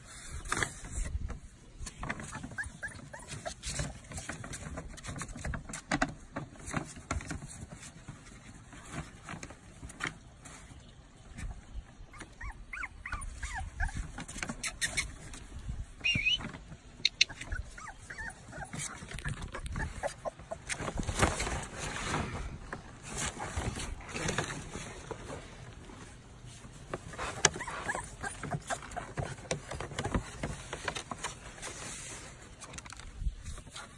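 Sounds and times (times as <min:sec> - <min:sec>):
paper rustling and crinkling: 0:00.0 - 0:11.6, 0:18.5 - 0:33.9
puppies whimpering and squeaking: 0:02.0 - 0:05.7, 0:11.9 - 0:21.8, 0:27.0 - 0:31.1.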